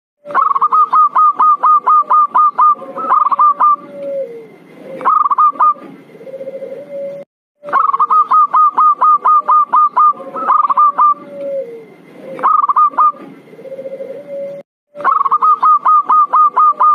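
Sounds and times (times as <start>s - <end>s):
dove rolling coos: 0.3s - 16.9s.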